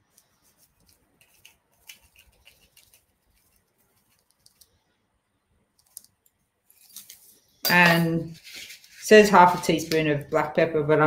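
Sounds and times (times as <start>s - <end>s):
teaspoon clicking and scraping: 0.1s - 4.8s, 5.8s - 9.1s.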